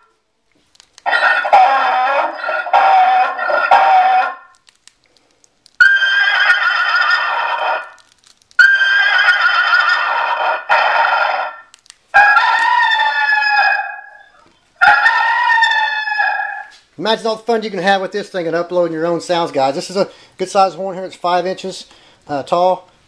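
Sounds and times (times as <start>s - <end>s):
farm animal calls through loudspeaker: 1.1s - 4.5s, 8.6s - 11.6s, 12.2s - 16.8s.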